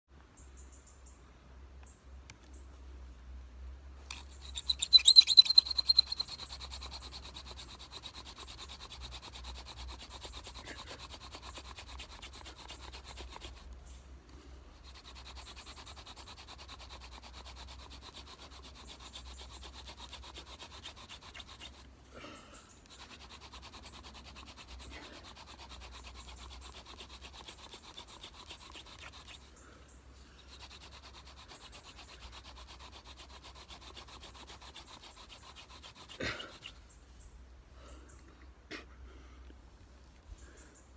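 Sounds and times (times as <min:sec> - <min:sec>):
high squeak: 0:04.1 - 0:06.8
wooden spindle dry rubbing: 0:04.1 - 0:21.9, 0:22.7 - 0:29.6, 0:30.2 - 0:37.0.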